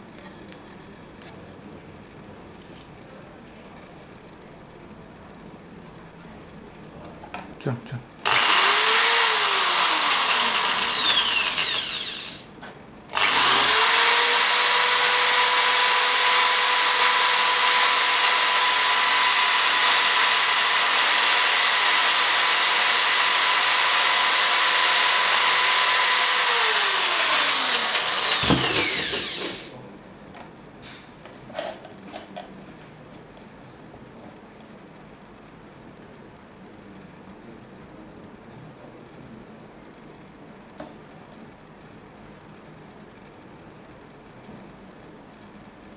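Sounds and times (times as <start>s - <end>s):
electric drill grinding into glass: 8.2s - 12.5s, 13.2s - 29.7s.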